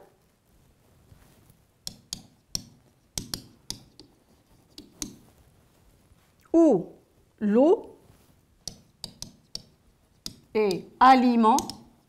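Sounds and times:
pen tapping on whiteboard: 0:01.8 - 0:05.3, 0:08.6 - 0:12.0.

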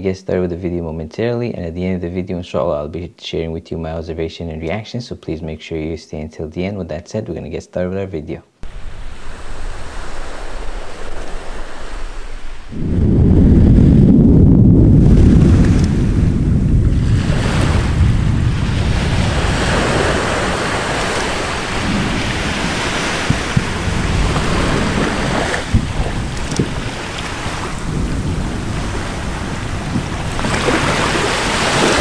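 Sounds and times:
surf: 0:08.6 - 0:32.0
volcano rumbling: 0:08.6 - 0:32.0
wind buffeting microphone: 0:08.6 - 0:32.0.

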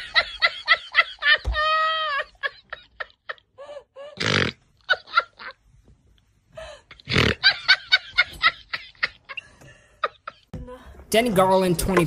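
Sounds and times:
people laughing hard: 0:00.0 - 0:03.8, 0:04.8 - 0:05.6, 0:07.3 - 0:10.5.

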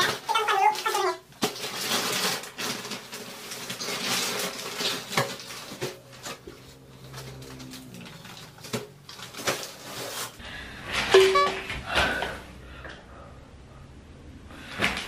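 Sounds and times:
plastic wrapping crinkling: 0:00.0 - 0:10.4.

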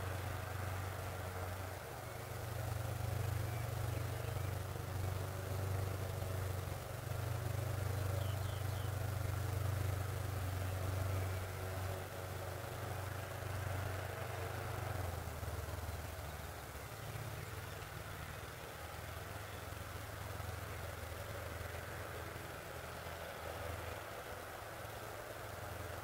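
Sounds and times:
low engine hum: 0:00.0 - 0:26.0
faint high chirps: 0:08.1 - 0:09.0.

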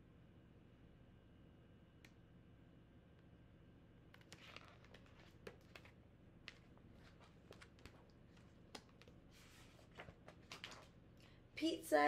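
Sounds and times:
faint clicks of book handling: 0:04.1 - 0:11.0
page turning rustle: 0:04.2 - 0:11.0.

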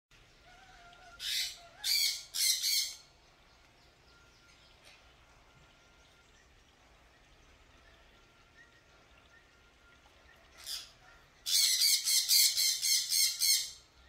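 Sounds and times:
harsh rasping animal calls: 0:00.4 - 0:03.0.

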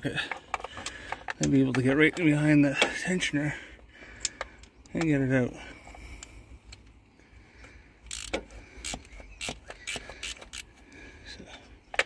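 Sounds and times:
ratchet clicking: 0:08.1 - 0:10.7.

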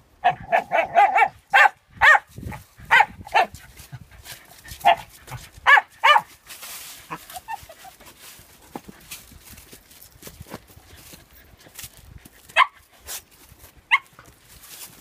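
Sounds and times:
small dogs barking: 0:00.2 - 0:03.6, 0:04.7 - 0:06.3, 0:12.5 - 0:12.8, 0:13.9 - 0:14.1.

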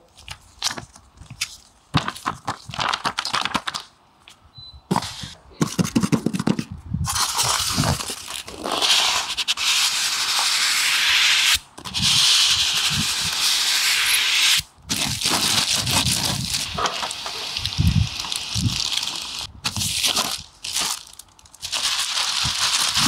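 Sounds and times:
foam scraping against cardboard: 0:04.9 - 0:21.0, 0:21.6 - 0:23.0
plastic wrapping rustling: 0:14.9 - 0:23.0.

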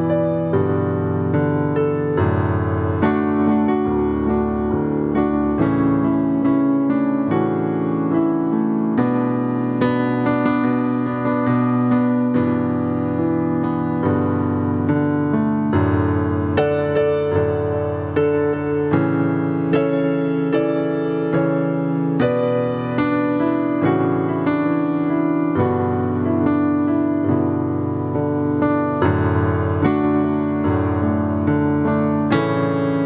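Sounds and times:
slow keyboard chords: 0:00.0 - 0:33.0.

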